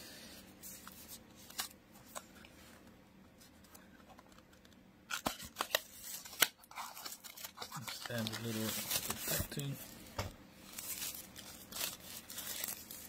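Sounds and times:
wrapping crinkling and clicking: 4.2 - 9.9, 10.7 - 13.0
cardboard rustling: 5.2 - 9.9, 10.7 - 13.0.

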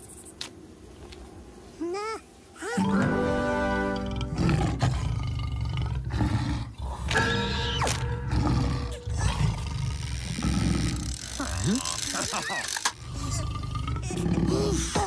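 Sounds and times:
cartoon music: 2.8 - 4.3.

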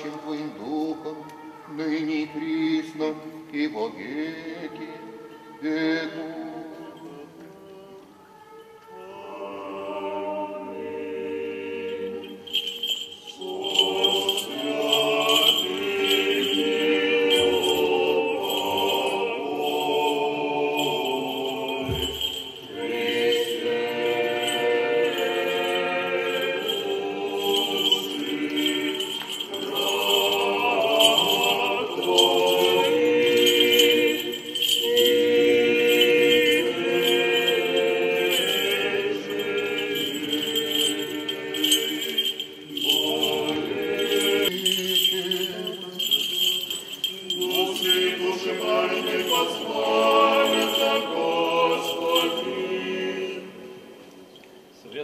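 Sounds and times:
choir chanting unaccompanied: 0.0 - 8.0, 8.9 - 53.9
censer bells jingling: 12.1 - 52.9.

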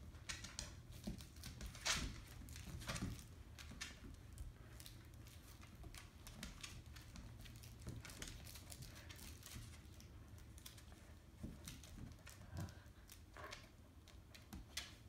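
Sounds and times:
dog claws clicking on vinyl floor: 0.0 - 15.0.

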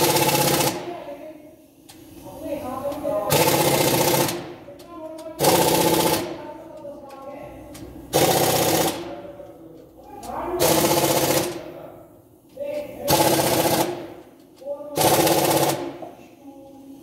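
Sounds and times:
impact wrench hammering: 0.0 - 0.9, 3.3 - 6.5, 7.1 - 9.2, 10.3 - 11.7, 13.0 - 14.4, 15.0 - 16.2.

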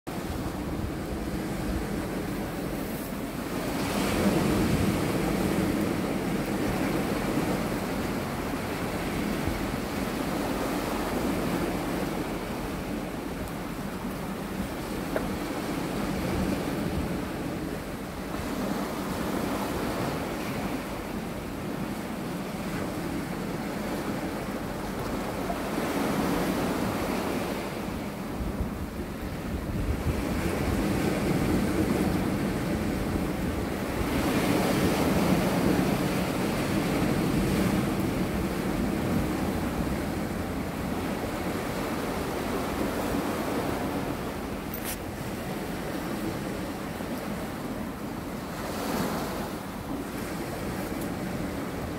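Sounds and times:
sea waves washing over rocks: 0.1 - 51.9.

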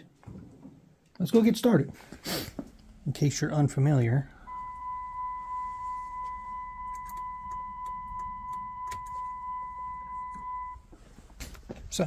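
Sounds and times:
high-pitched electronic beep tone: 4.5 - 10.8.

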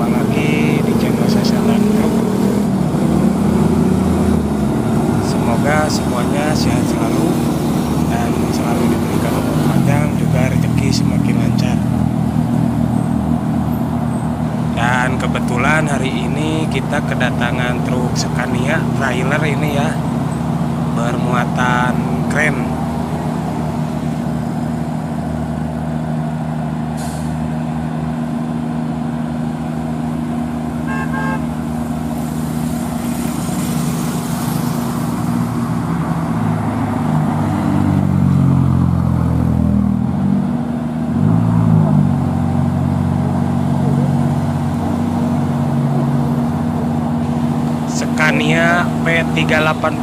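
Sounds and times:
truck diesel engine under load: 0.0 - 50.0
truck horn toot: 30.8 - 31.7.

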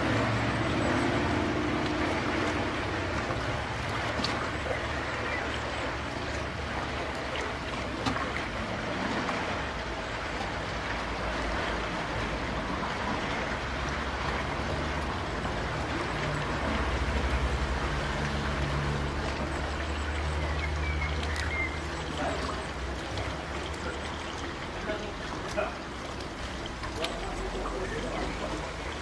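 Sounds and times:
motorboat engine hum: 0.0 - 29.0.

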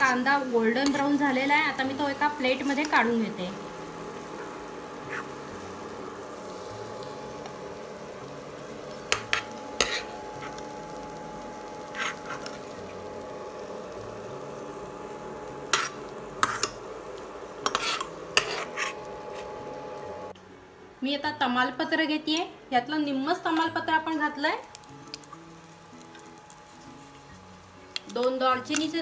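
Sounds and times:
spoon scraping a frying pan: 5.1 - 5.4, 9.1 - 10.6, 11.9 - 12.7, 15.7 - 16.8, 17.6 - 19.6.

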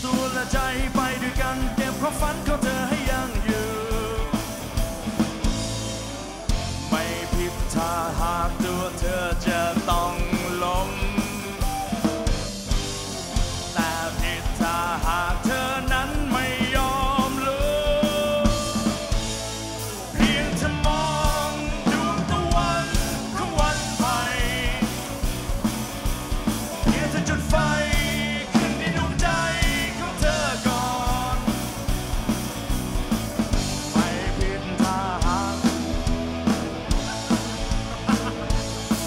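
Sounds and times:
person singing with vibrato: 0.0 - 4.6, 6.8 - 11.8, 13.7 - 19.4, 20.1 - 25.3, 26.7 - 31.8, 33.7 - 36.0
electric guitars: 0.0 - 39.0
steady drum beat: 0.0 - 39.0.

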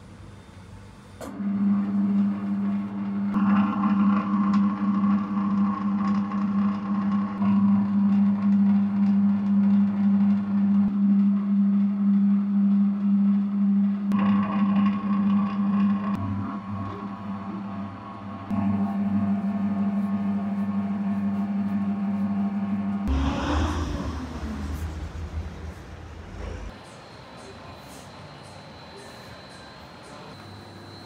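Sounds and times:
high whine: 16.2 - 27.2.

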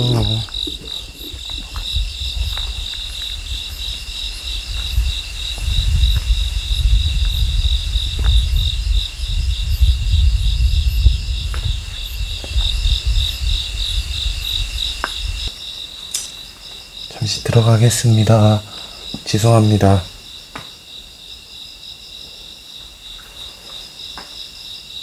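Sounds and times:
low rumble on microphone: 0.0 - 15.5
crickets chirping: 0.0 - 25.0.

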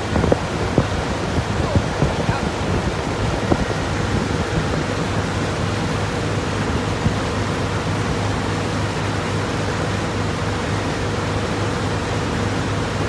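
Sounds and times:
wind on microphone: 0.0 - 8.5
boat engine humming: 0.0 - 13.0
water rushing along hull: 0.0 - 13.0
water slapping: 0.0 - 13.0.

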